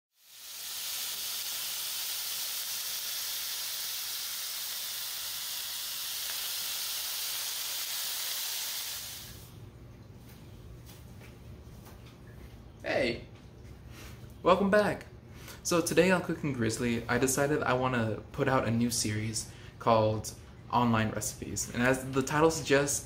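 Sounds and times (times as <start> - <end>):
tomatoes and garlic sizzling in oil: 0.1 - 9.5.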